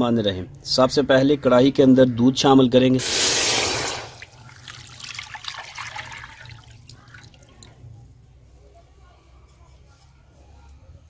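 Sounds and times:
milk pouring into metal pan: 0:03.7 - 0:07.7.

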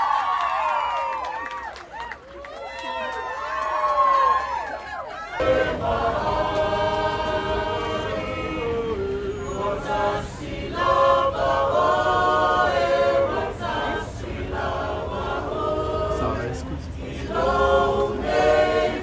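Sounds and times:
voices singing in chords: 0:05.4 - 0:19.0.

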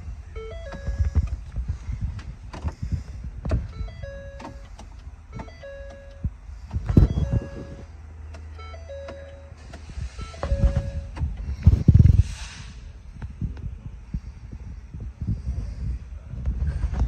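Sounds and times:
car warning chime: 0:00.3 - 0:01.4, 0:03.6 - 0:11.2
camera handling rumble and knocks: 0:10.4 - 0:12.2.

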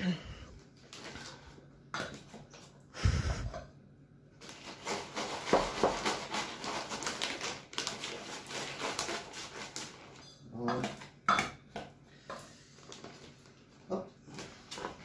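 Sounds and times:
plastic bag crinkling: 0:04.4 - 0:10.2.

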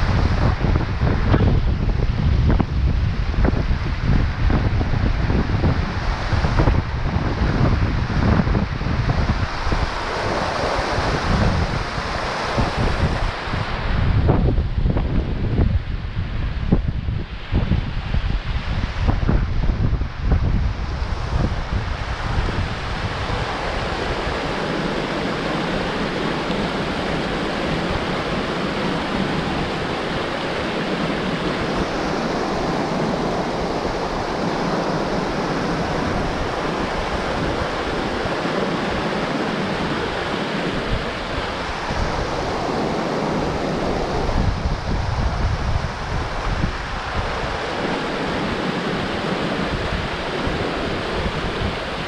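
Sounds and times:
wind buffeting the microphone: 0:00.0 - 0:52.0
stream rushing over rocks: 0:03.4 - 0:14.0, 0:21.0 - 0:52.0.

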